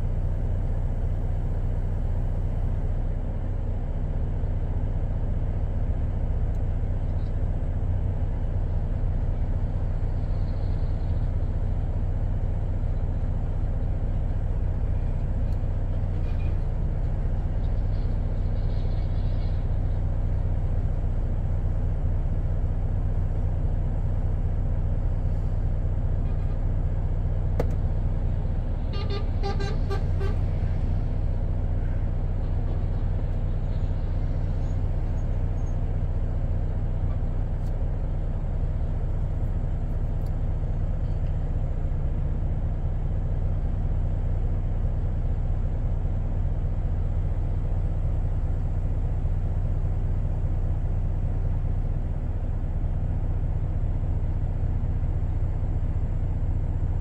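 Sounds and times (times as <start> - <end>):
vehicle engine idling: 0.0 - 57.0
short horn toots: 28.8 - 30.8.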